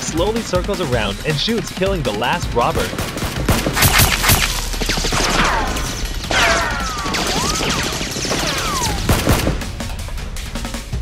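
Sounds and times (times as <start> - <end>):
background music: 0.0 - 11.0
gunshots: 2.8 - 9.9.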